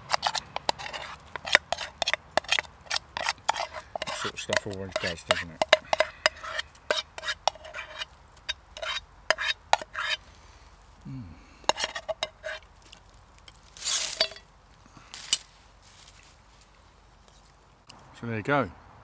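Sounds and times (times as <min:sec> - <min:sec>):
metal spoon scraping pot: 0:00.0 - 0:10.2, 0:11.7 - 0:12.7
metal spoon clinking on pot: 0:03.2 - 0:06.6.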